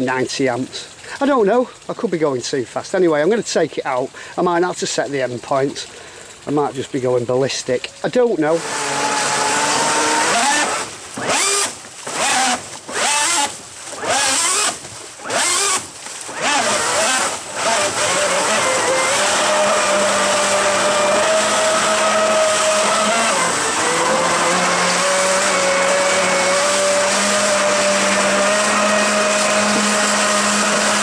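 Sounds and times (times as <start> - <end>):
churning water: 0.0 - 31.0
electric motor whine: 8.5 - 31.0.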